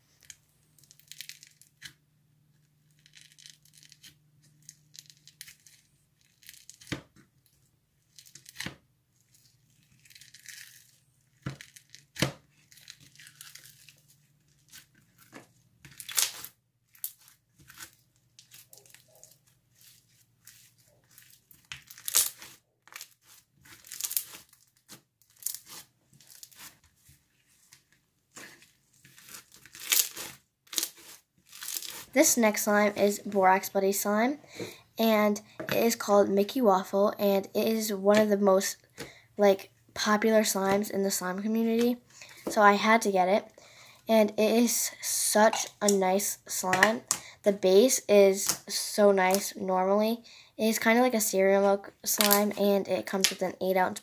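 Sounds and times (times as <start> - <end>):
slime crackling and crunching: 8.1 - 26.8, 28.3 - 32.7.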